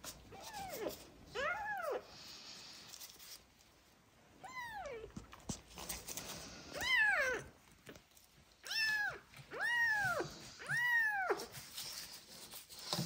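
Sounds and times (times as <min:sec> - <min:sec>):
kitten meowing: 0:08.6 - 0:11.5.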